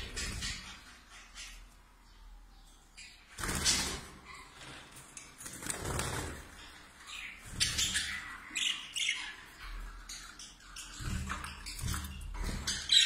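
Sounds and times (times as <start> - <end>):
birds fluttering wings in cages: 0.0 - 0.8, 3.3 - 8.5, 10.3 - 13.0.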